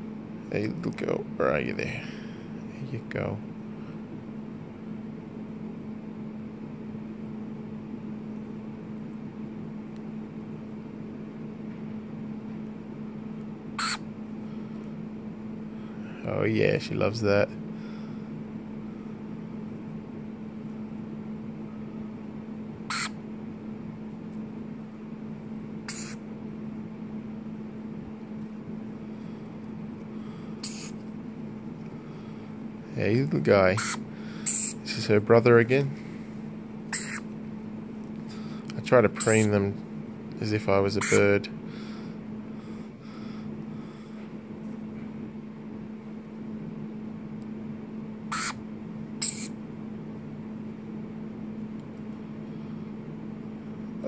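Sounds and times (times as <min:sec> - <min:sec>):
steady low hum: 0:00.0 - 0:54.0
lorikeets squawking: 0:13.8 - 0:14.1, 0:22.9 - 0:23.2, 0:25.8 - 0:26.2, 0:30.6 - 0:31.0, 0:33.6 - 0:35.0, 0:36.9 - 0:37.3, 0:39.2 - 0:39.6, 0:41.0 - 0:41.3, 0:48.3 - 0:48.6, 0:49.2 - 0:49.6.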